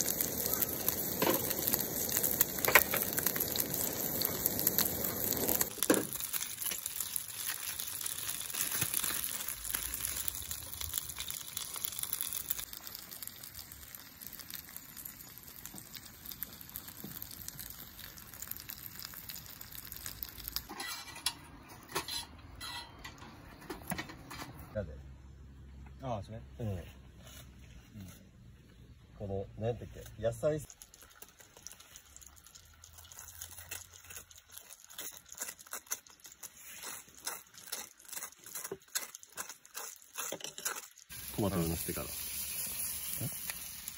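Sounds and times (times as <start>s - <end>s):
patty sizzling in hot oil: 0.0s - 23.0s, 29.6s - 43.9s.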